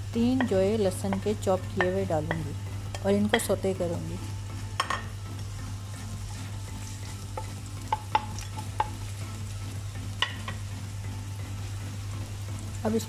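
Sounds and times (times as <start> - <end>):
garlic sizzling in oil: 0.0 - 13.0
spatula tapping a pan: 0.2 - 3.7, 4.6 - 9.4, 10.0 - 10.8
wooden spatula stirring: 4.5 - 9.2.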